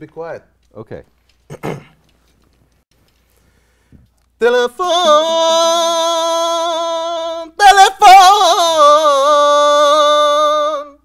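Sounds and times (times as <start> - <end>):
man singing unaccompanied: 4.4 - 11.0.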